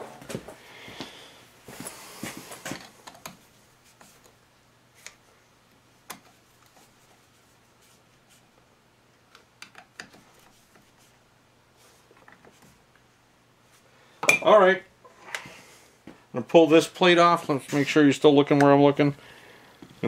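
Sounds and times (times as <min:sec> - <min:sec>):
screwdriver clicks and taps: 0:09.3 - 0:10.2.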